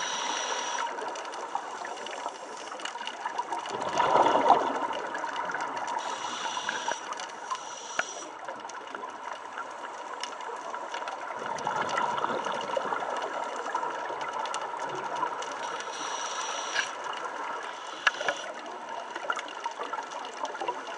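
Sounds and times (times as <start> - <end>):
regulator inhale hiss: 0.0 - 0.9, 6.0 - 8.3, 15.6 - 17.0, 17.7 - 18.5
fine crackling and clicking: 0.0 - 20.9.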